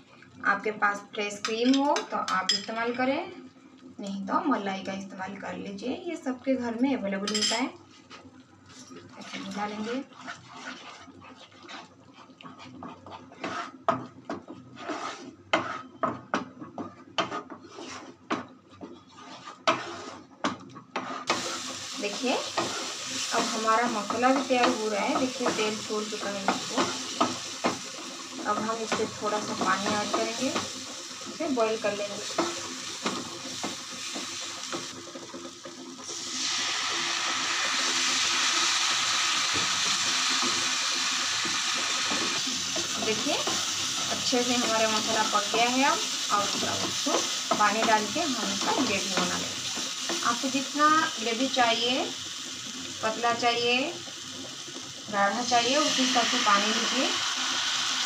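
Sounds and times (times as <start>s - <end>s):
spatula scraping frying pan: 9.2s - 36.2s, 39.3s - 50.7s
spatula scraping paste in pan: 9.5s - 16.0s, 16.8s - 18.2s, 18.9s - 20.3s, 20.9s - 21.7s
loud sizzling hiss: 36.1s - 53.9s, 55.3s - 58.0s.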